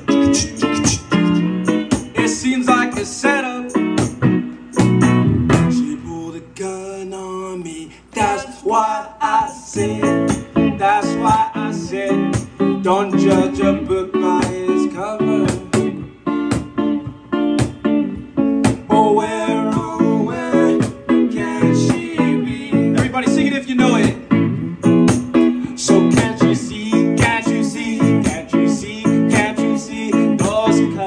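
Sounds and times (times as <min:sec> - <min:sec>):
person singing: 0:00.0 - 0:03.8, 0:05.7 - 0:16.3, 0:18.9 - 0:23.4, 0:25.5 - 0:31.0
song with guitar and beat: 0:00.0 - 0:06.3, 0:09.3 - 0:31.0.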